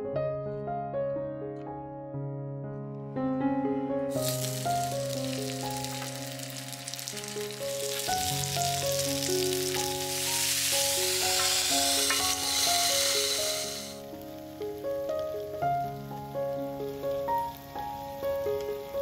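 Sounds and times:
dumplings sizzling in oil: 4.1s - 19.0s.

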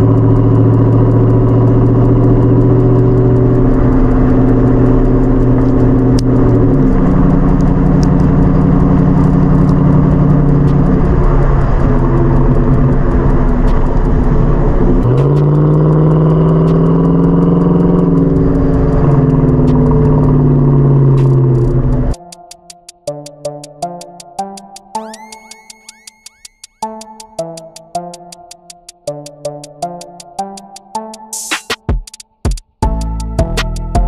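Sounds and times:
truck exhaust note while driving: 0.0s - 22.2s.

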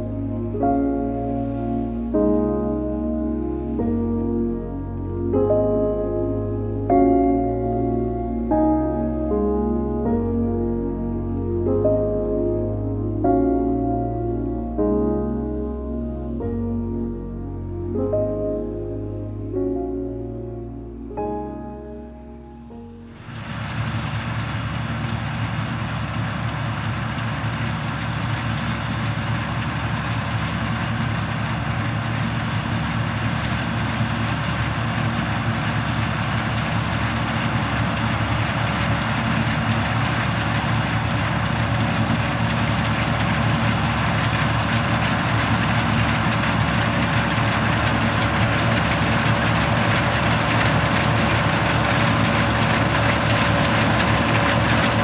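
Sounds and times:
combine harvester running: 0.0s - 12.6s, 23.0s - 55.0s.

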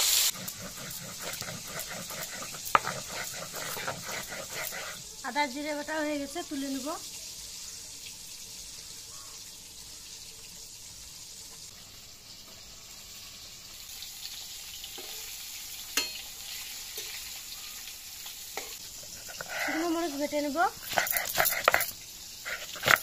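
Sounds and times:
fish sizzling in hot oil: 0.0s - 23.0s
metal spatula clinking on pan: 16.0s - 16.3s.

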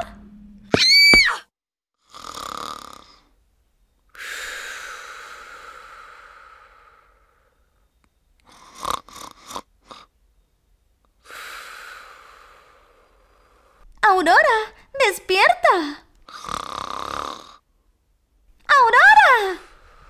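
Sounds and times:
comic snoring breaths: 2.0s - 3.4s, 4.1s - 7.7s, 8.4s - 10.1s, 16.2s - 17.7s
short snorts: 8.5s - 10.1s, 16.3s - 17.6s.

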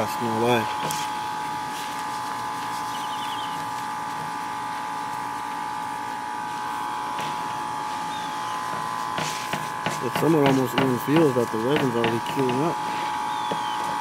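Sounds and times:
machine-like hum: 0.0s - 14.0s
faint bird trill: 2.8s - 3.7s, 8.0s - 8.8s, 13.2s - 14.0s.

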